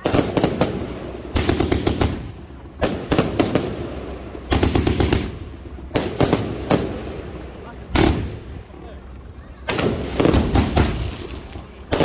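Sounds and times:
fireworks rapid bangs: 0.0s - 8.5s, 9.6s - 12.0s.

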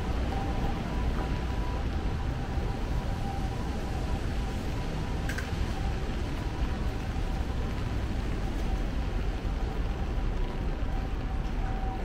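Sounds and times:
city street rumble and hiss: 0.0s - 12.0s.

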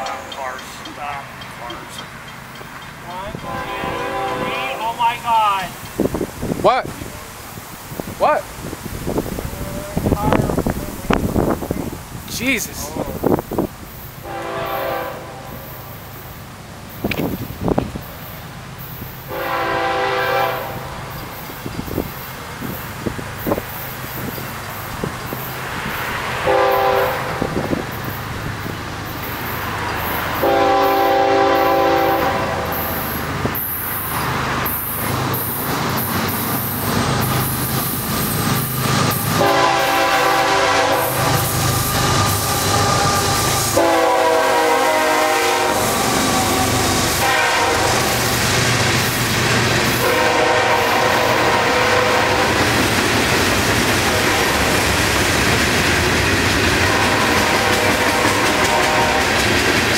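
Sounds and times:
freight cars clattering on rails: 0.0s - 4.4s, 52.4s - 59.9s
locomotive rumble: 0.0s - 59.9s
train horn blasts: 3.3s - 5.0s, 14.2s - 16.0s, 19.3s - 21.1s, 26.4s - 27.7s, 30.3s - 33.2s, 39.3s - 48.4s, 50.0s - 52.6s, 54.0s - 54.8s, 56.8s - 59.4s.

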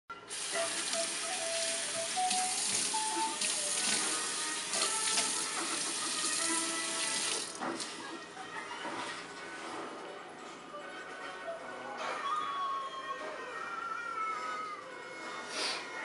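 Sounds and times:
background music: 0.1s - 16.0s
tap water running into sink: 0.3s - 8.0s.

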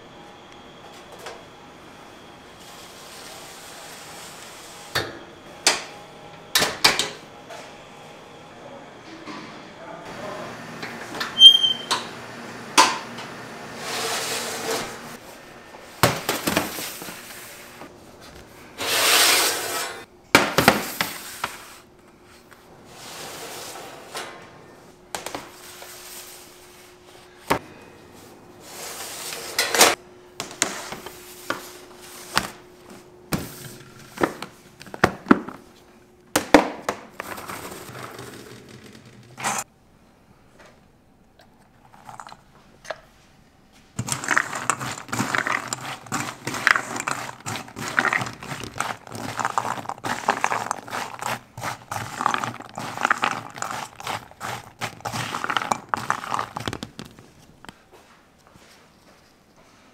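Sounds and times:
utensils and dishes clinking: 44.0s - 57.1s.

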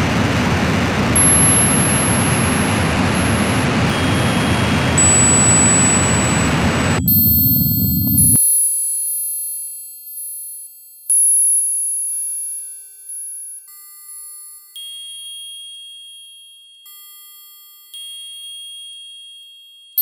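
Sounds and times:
loud burst of noise: 0.0s - 8.4s
high piercing pure tones: 1.2s - 8.4s.

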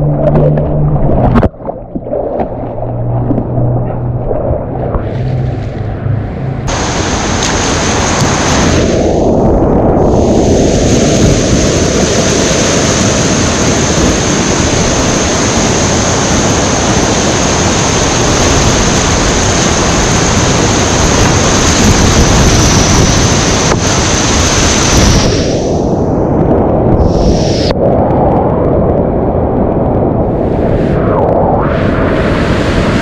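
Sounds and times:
whitewater rapids rushing: 6.7s - 9.0s.

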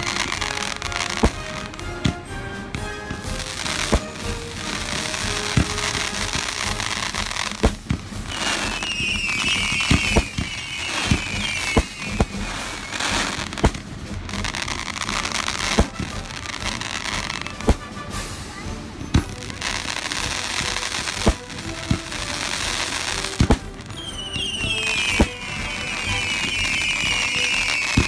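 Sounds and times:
firework crackling: 0.0s - 2.0s, 2.7s - 28.0s
firework shell bursts: 2.8s - 28.0s
firework whistles: 3.4s - 18.3s, 22.1s - 28.0s.

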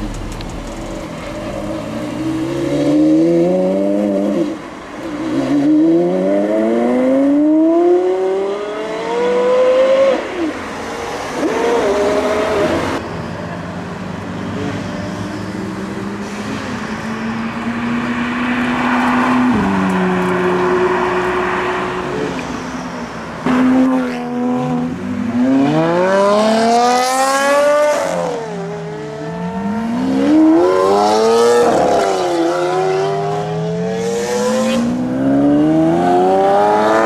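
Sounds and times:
sports car engine accelerating hard: 23.4s - 37.0s.

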